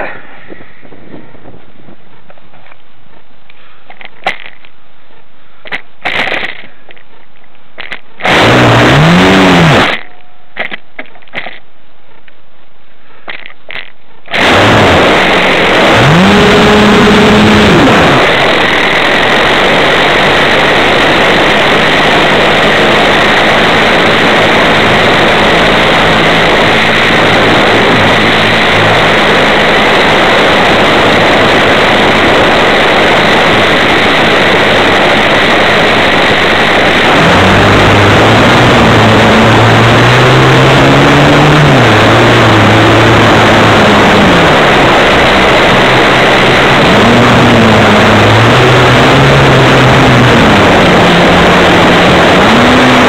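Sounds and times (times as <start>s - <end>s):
small clicks: 3.9s - 4.8s, 5.6s - 8.4s, 13.3s - 14.5s
model plane motor: 8.2s - 10.0s, 14.3s - 53.0s
rushing air: 14.3s - 53.0s.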